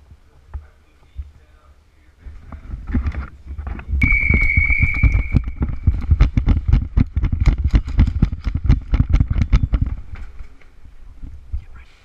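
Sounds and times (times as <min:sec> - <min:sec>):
knocks and thumps of movement: 0:02.2 - 0:11.6
high whistle-like tone: 0:04.0 - 0:05.6.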